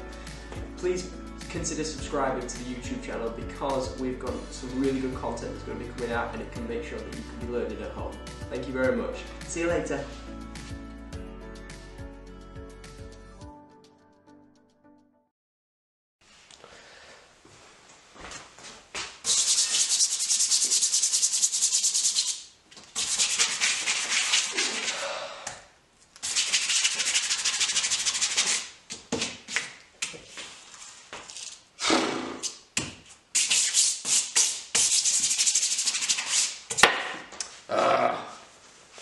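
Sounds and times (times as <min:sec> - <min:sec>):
brush scrubbing on cloth: 0:19.3 - 0:22.4, 0:23.0 - 0:24.9, 0:26.2 - 0:28.7.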